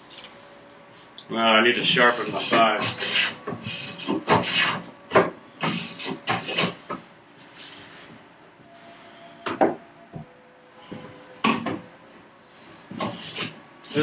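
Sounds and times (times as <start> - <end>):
hand plane rasping on wood: 2.1 - 4.8, 5.6 - 6.8.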